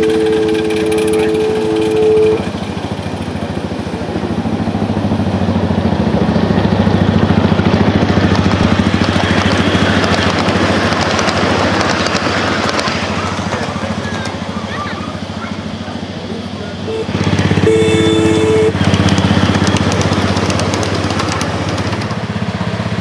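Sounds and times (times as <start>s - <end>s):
two-note horn: 0.0s - 2.6s, 16.8s - 18.9s
miniature locomotive engine running: 0.0s - 23.0s.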